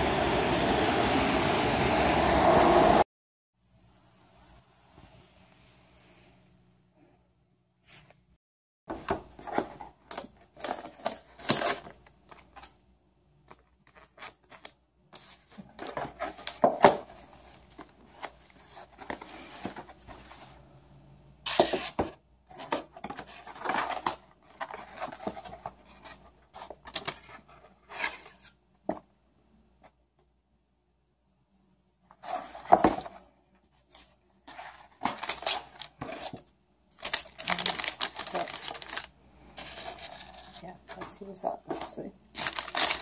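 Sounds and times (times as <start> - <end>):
paper crinkling and rustling: 21.5 - 28.5, 33.8 - 43.0.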